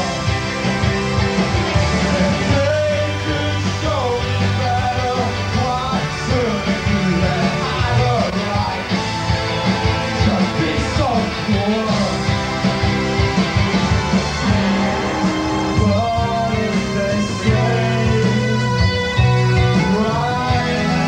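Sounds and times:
live rock band playing: 0.0 - 21.0
person singing: 1.4 - 8.9, 10.2 - 12.5, 14.4 - 21.0.

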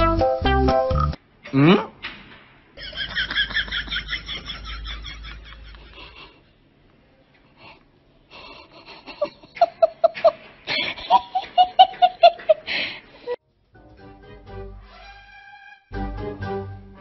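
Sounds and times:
person giggling: 1.5 - 1.9, 2.8 - 6.4, 8.4 - 13.4.

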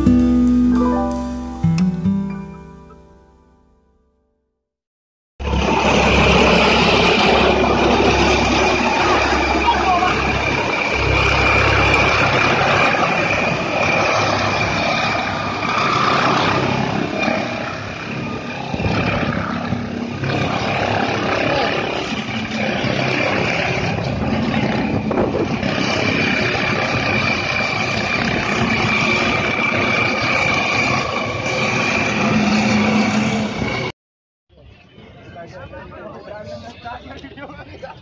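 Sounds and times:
helicopter rotor and engine: 5.4 - 33.9
high turbine whine: 5.4 - 33.9.

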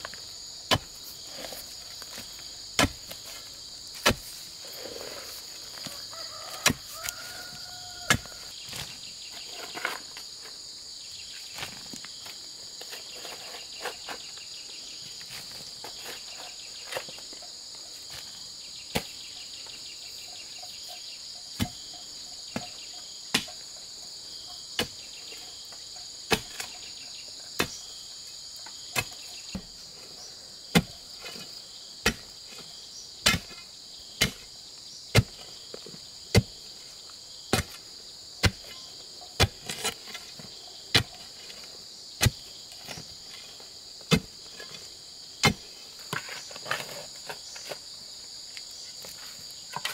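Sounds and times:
bar tamping soil knocks: 0.0 - 3.3, 3.9 - 4.4, 5.8 - 9.0, 30.7 - 31.4, 33.2 - 34.5, 35.1 - 36.6, 37.5 - 37.8, 38.4 - 41.6, 42.2 - 43.1, 44.0 - 47.8
insect chorus: 0.0 - 49.9.

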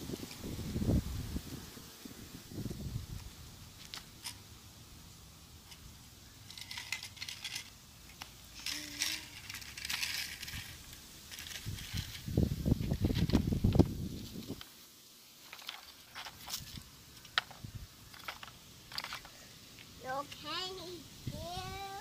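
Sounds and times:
rustling: 0.0 - 20.4
toy truck scraping gravel: 5.6 - 13.6.

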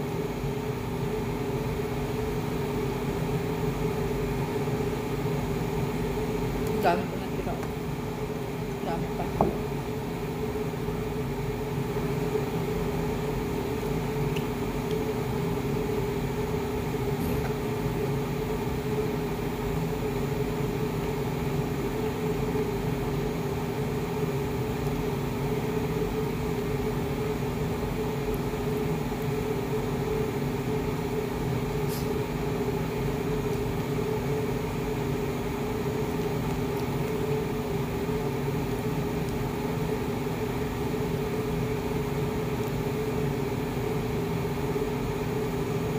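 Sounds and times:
appliance humming: 0.0 - 45.9.

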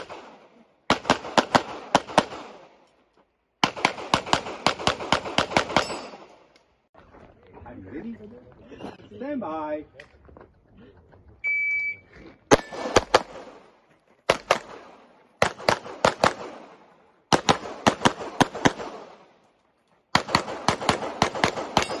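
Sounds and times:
pistol shots: 0.0 - 2.8, 3.6 - 6.5, 12.5 - 19.3, 20.1 - 22.0
shot timer beep: 11.4 - 12.8.

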